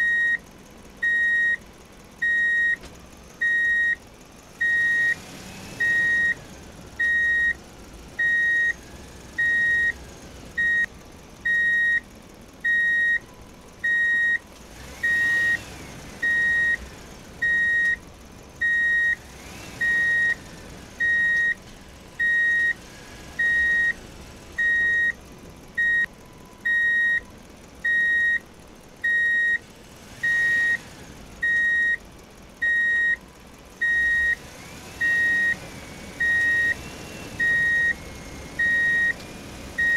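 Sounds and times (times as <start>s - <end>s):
electronic warning beeps: 0.0s - 0.4s, 1.0s - 1.6s, 2.2s - 2.8s, 3.4s - 4.0s, 4.6s - 5.2s, 5.8s - 6.4s, 7.0s - 7.6s, 8.2s - 8.8s, 9.4s - 10.0s, 10.6s - 10.9s, 11.5s - 12.0s, 12.6s - 13.2s, 13.8s - 14.4s, 16.2s - 16.8s, 17.4s - 18.0s, 18.6s - 19.2s, 19.8s - 20.4s, 21.0s - 21.6s, 22.2s - 22.8s, 23.4s - 24.0s, 24.6s - 25.2s, 25.8s - 28.4s, 29.0s - 29.6s, 30.2s - 30.8s, 31.4s - 32.0s, 32.6s - 33.2s, 33.8s - 34.4s, 36.2s - 36.8s, 37.4s - 38.0s, 38.6s - 39.2s.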